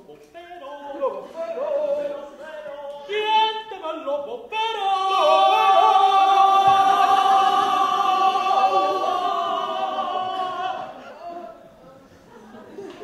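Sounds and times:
voices singing long high note: 4.6 - 11.6.

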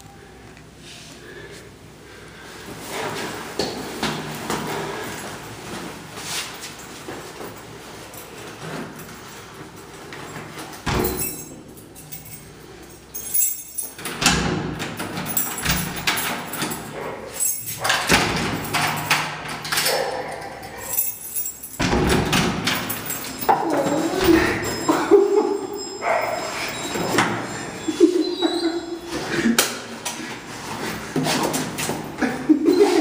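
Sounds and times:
door lock and handle rattling: 8.4 - 25.1
dog whining: 23.3 - 29.3, 32.5 - 33.0.

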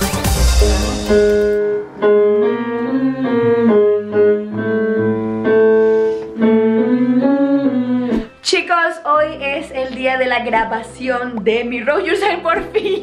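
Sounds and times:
electronic keyboard piano chords: 0.0 - 8.4.

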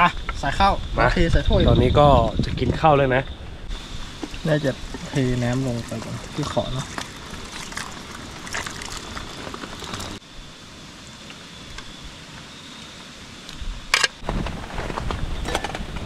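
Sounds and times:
rumbling handling noise: 3.7 - 10.2
light rain pattering: 3.8 - 10.2.

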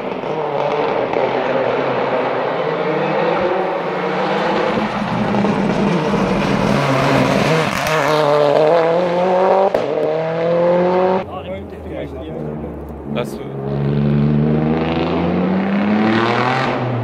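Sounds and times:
race car engine accelerating: 0.0 - 17.0.

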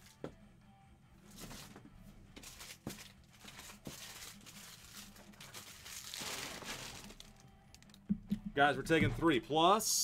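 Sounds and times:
crinkling and rustling: 1.3 - 8.0.

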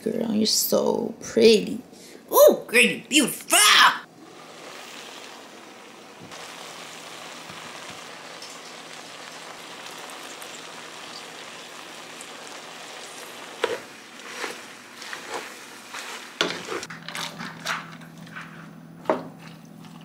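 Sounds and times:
food sizzling in pot: 4.0 - 16.9.

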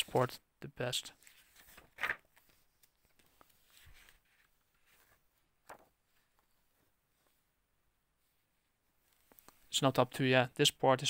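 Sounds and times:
soft paper rustles: 1.1 - 7.5, 8.2 - 9.7.

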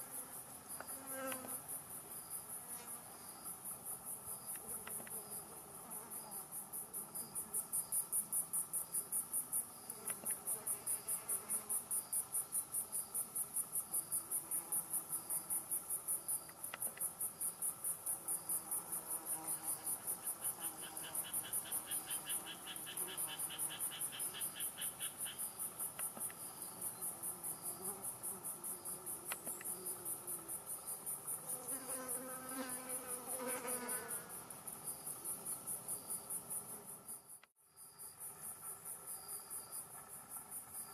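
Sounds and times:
lower pulsing insect song: 0.0 - 40.9
high-pitched pulsing insect call: 19.1 - 40.9.

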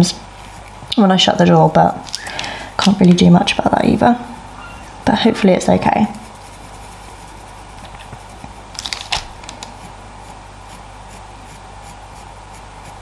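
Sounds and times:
low room hum: 0.0 - 13.0
pencil scratching on paper: 0.3 - 0.9, 3.1 - 8.7, 9.8 - 13.0.

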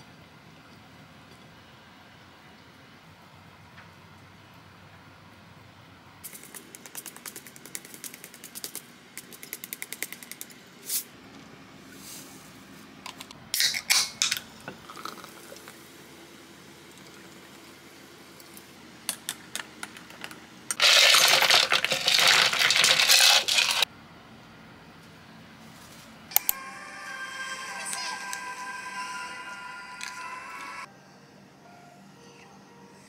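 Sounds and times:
soda can opening: 13.6 - 14.4, 20.8 - 23.8
drink poured over ice: 20.8 - 23.8.

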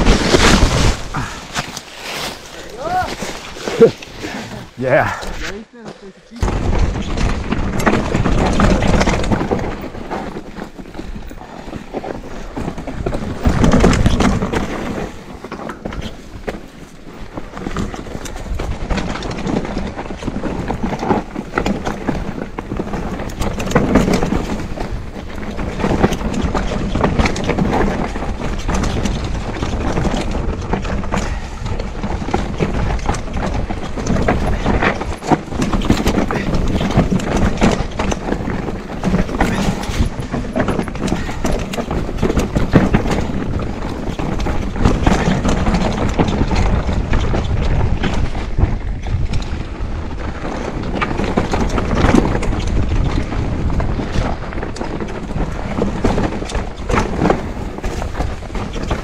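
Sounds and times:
wind noise on microphone: 0.0 - 5.6, 6.4 - 59.0
bike rattling over bumps: 0.0 - 59.0
bike tyres crunching over stones: 0.0 - 59.0.

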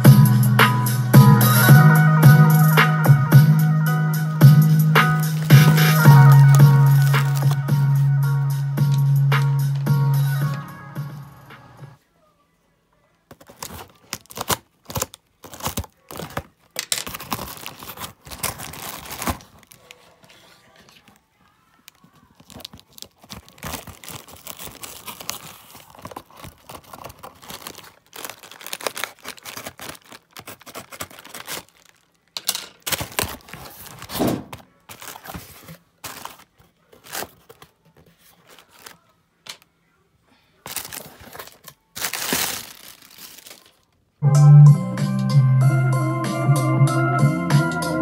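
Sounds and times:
plastic bag crinkling and tearing: 5.1 - 7.9, 13.3 - 21.2, 21.8 - 39.1, 40.6 - 44.0
cardboard box handled: 34.9 - 36.4.

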